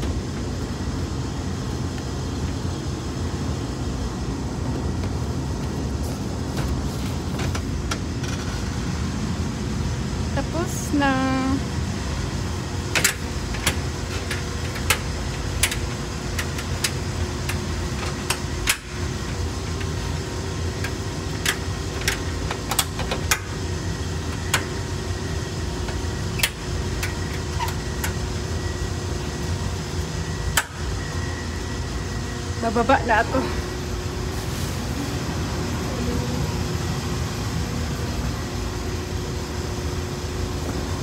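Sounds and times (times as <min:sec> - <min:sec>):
hvac unit humming: 0:00.0 - 0:41.0
sharp clicks and knocks: 0:12.9 - 0:18.9.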